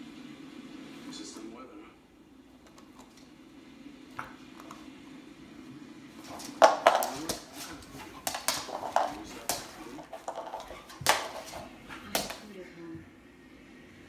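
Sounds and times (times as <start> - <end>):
dog treat clattering on wood floor: 6.3 - 12.4
dog claws clicking on boards: 6.4 - 12.5.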